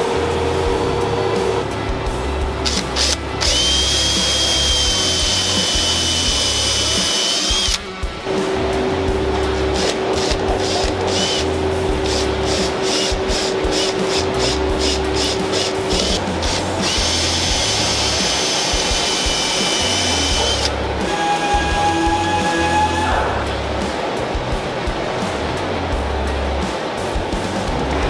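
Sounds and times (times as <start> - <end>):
drill motor whining: 2.6 - 7.8, 9.8 - 23.2.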